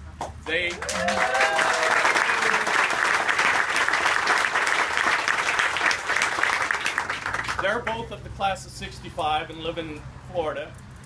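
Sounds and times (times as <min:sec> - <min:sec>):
crowd applauding: 0:00.5 - 0:07.8.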